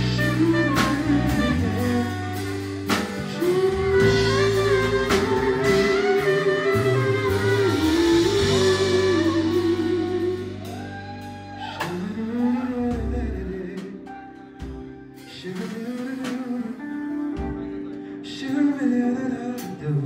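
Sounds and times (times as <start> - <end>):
saxophone with gliding notes: 0.0 - 11.5
jazz band playing: 0.0 - 20.0.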